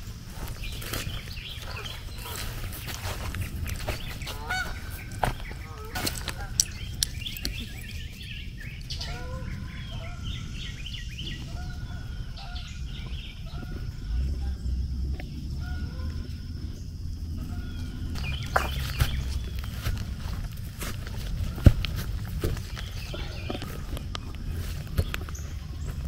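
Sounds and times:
birds calling: 0:00.0 - 0:26.0
low rumble: 0:00.0 - 0:26.0
sharp clicks: 0:06.0 - 0:07.8.

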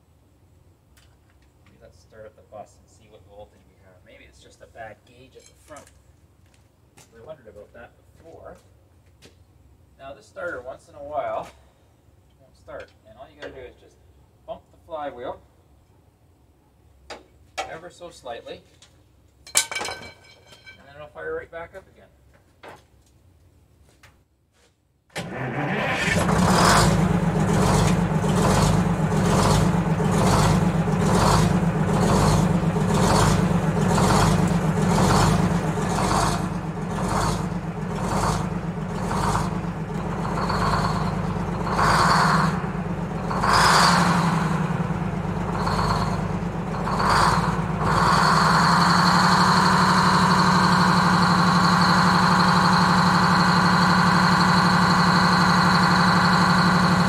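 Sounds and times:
diesel engine starting and running: 0:25.2 - 0:57.0
engine high whine: 0:25.2 - 0:57.0.

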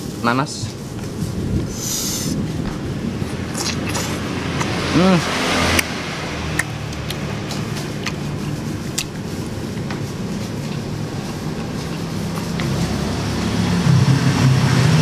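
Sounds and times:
low background rumble: 0:00.0 - 0:05.1
chewing with wet clicks and smacks: 0:03.5 - 0:12.9.

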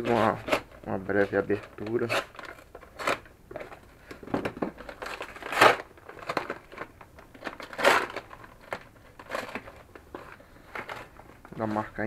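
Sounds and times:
paper mailer cut and torn: 0:01.5 - 0:03.2.

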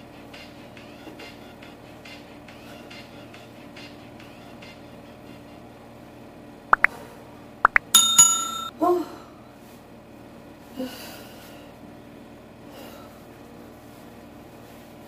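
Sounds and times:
bell-like notification ding: 0:08.0 - 0:08.7.

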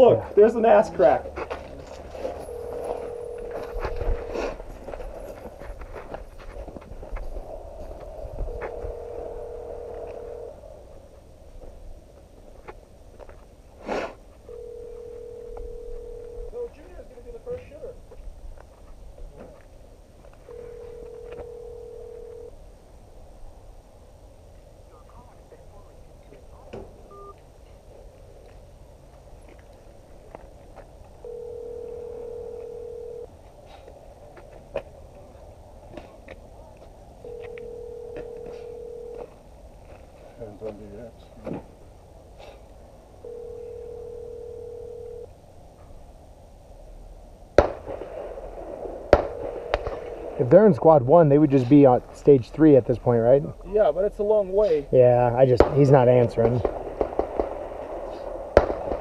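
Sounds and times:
phone ringback tone: 0:02.3 - 0:04.6, 0:08.4 - 0:10.6, 0:14.5 - 0:16.6, 0:20.5 - 0:22.5, 0:27.1 - 0:27.4, 0:31.2 - 0:33.3, 0:37.2 - 0:39.3, 0:43.2 - 0:45.3
pistol shot: 0:47.6 - 0:50.4, 0:56.4 - 0:59.0.

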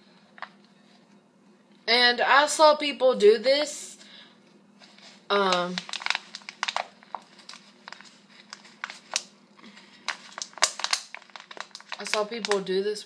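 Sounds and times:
plastic bottle crinkling: 0:04.9 - 0:12.7.

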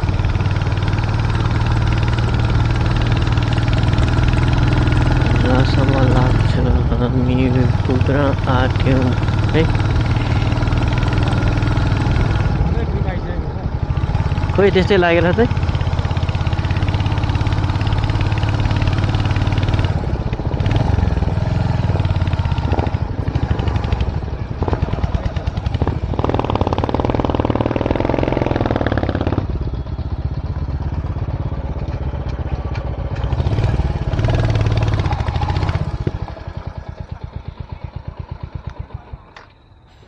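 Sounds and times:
motorcycle engine running: 0:00.0 - 0:40.0.

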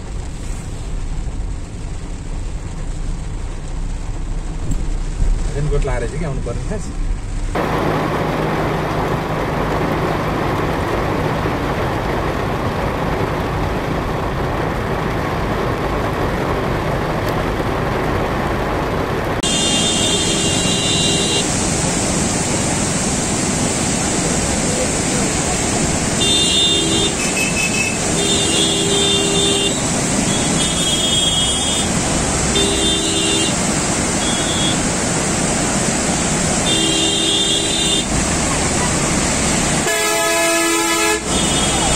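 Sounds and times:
floodwater rushing: 0:00.0 - 0:41.9
heavy rain: 0:00.0 - 0:41.9
traffic on a wet road: 0:00.0 - 0:41.9
vehicle horn: 0:19.4 - 0:21.5, 0:26.2 - 0:33.6, 0:34.2 - 0:34.8, 0:36.6 - 0:38.1, 0:39.8 - 0:41.9.

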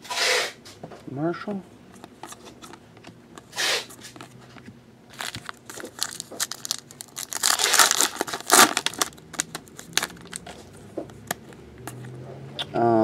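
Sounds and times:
cards being handled: 0:03.4 - 0:12.2
foil wrapper tearing and crinkling: 0:05.1 - 0:10.6.

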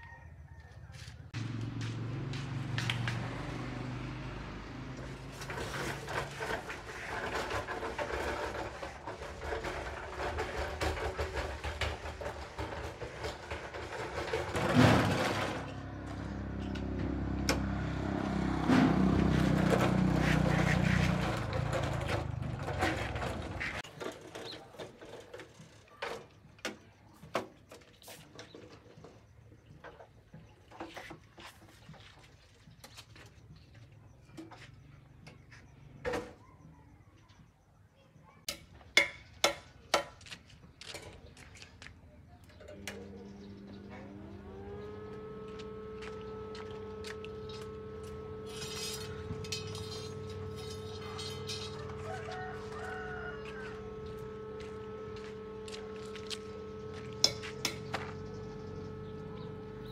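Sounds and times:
machine motor running: 0:01.4 - 0:23.8, 0:42.7 - 0:59.9.

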